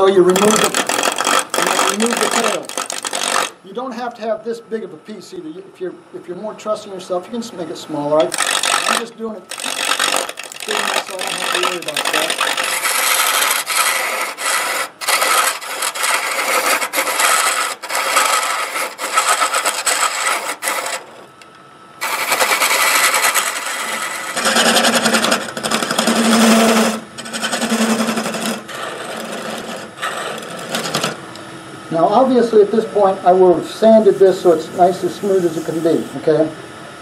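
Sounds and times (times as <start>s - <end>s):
lathe tool scraping wood: 0.0s - 3.6s, 8.2s - 21.3s, 22.0s - 31.2s, 33.8s - 36.1s.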